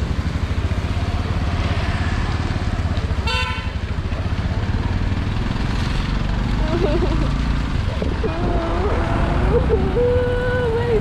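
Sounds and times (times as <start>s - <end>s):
motorcycle engine running: 0.0s - 11.0s
vehicle horn beep: 3.2s - 3.8s.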